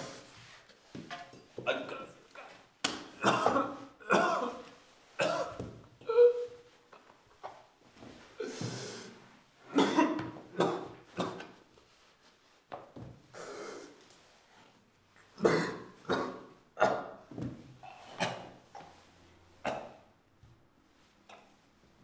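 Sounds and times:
man coughing: 3.2s - 4.6s, 5.2s - 5.6s, 9.8s - 11.5s, 15.4s - 17.0s.

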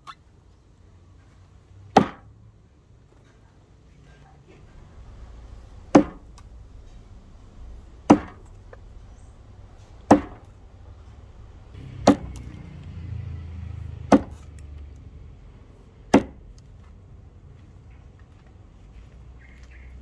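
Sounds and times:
axe chopping into wood: 1.9s - 2.3s, 5.9s - 6.2s, 8.1s - 8.4s, 10.1s - 10.5s, 12.0s - 12.4s, 14.0s - 14.5s, 16.1s - 16.5s.

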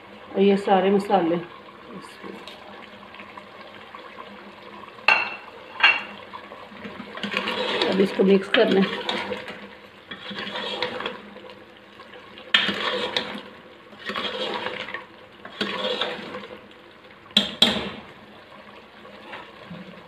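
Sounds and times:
spoon scraping in gravy: 7.2s - 8.1s, 10.1s - 11.2s, 12.5s - 13.3s, 14.0s - 14.9s, 15.5s - 16.4s.

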